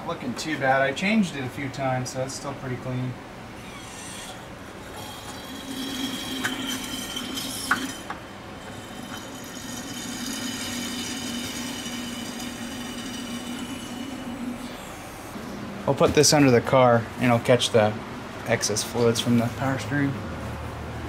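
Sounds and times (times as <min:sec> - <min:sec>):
fluid extractor humming and hissing: 0:03.0 - 0:17.3.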